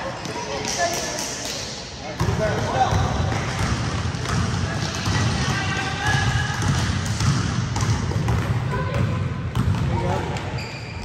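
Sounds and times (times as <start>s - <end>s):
basketball dribbling on gym floor: 2.2s - 10.1s.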